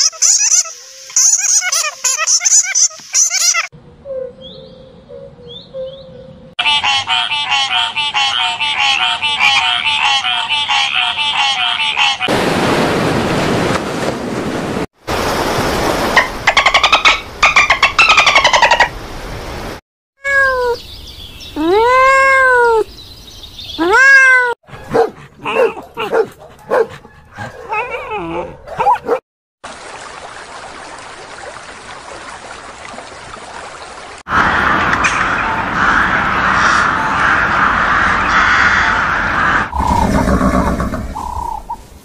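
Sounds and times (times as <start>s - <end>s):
cat meowing: 20.2s - 20.8s, 21.6s - 22.9s, 23.8s - 24.6s
dog barking and yelping: 24.6s - 29.2s
crows calling: 35.8s - 41.6s.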